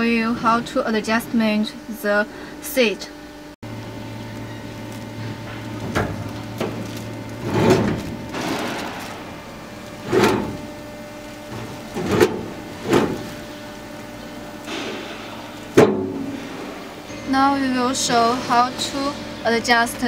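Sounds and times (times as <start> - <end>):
seat sliding clunks and knocks: 11.5 - 13.3.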